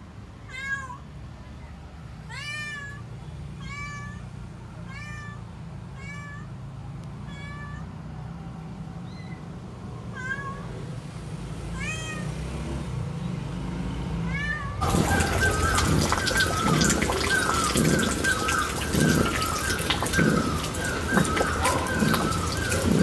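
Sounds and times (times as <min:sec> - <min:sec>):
cat meowing: 0:00.4 - 0:01.0, 0:04.9 - 0:05.4, 0:06.0 - 0:06.5, 0:07.2 - 0:07.9, 0:10.1 - 0:10.8, 0:11.8 - 0:12.3, 0:14.3 - 0:15.0.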